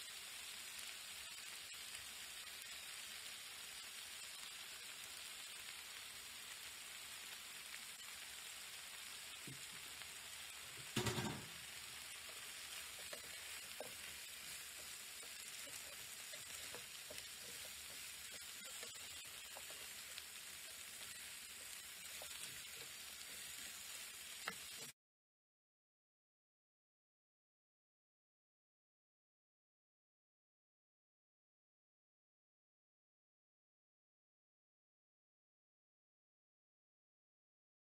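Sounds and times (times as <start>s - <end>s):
food sizzling in a frying pan: 0.0s - 25.0s
spatula scraping a pan: 10.8s - 24.9s
loud knock: 11.0s - 11.6s.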